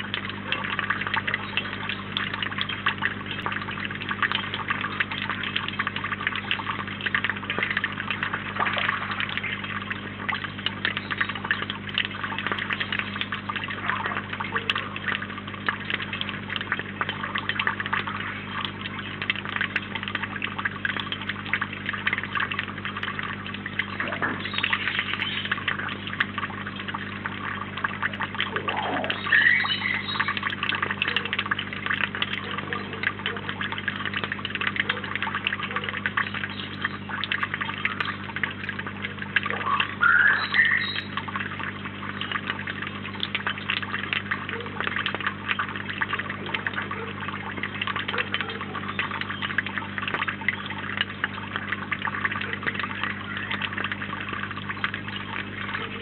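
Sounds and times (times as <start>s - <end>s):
low steady hum: 0.0s - 56.0s
water trickling: 0.0s - 56.0s.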